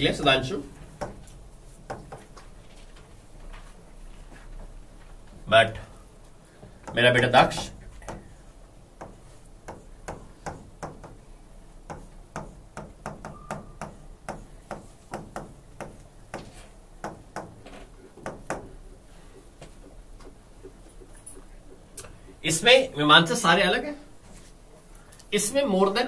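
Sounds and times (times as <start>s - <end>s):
stylus tapping on glass: 6.8s - 8.4s, 11.8s - 18.8s.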